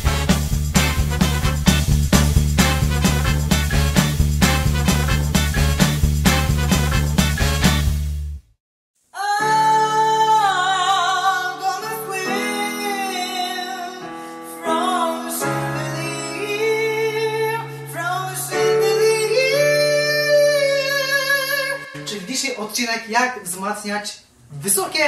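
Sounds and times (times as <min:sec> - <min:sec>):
keyboard chords: 0:00.0 - 0:07.9
man singing with vibrato: 0:14.6 - 0:22.7.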